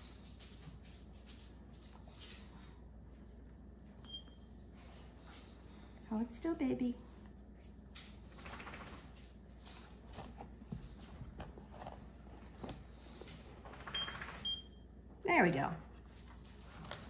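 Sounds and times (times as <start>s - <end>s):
rustling handling noise: 7.2s - 14.4s.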